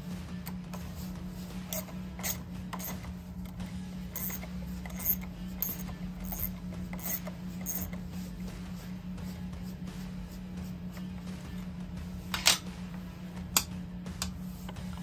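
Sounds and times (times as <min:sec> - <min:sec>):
steady low hum: 0:00.0 - 0:15.0
screwdriver clicking and scraping metal: 0:00.3 - 0:08.1.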